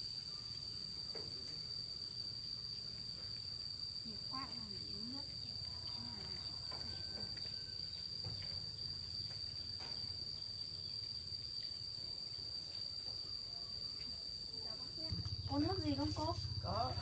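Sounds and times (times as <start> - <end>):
insects trilling: 0.0 - 17.0
low rumble: 15.1 - 17.0.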